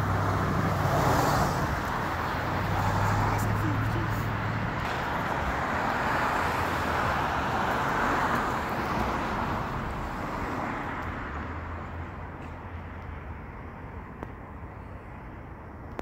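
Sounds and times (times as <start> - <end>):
vehicle passing by: 0.0 - 12.1.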